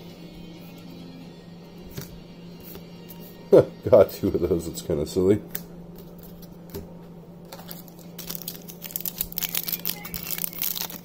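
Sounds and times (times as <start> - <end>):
steady low hum: 0.0 - 11.0
foil wrapper crinkling: 7.5 - 11.0.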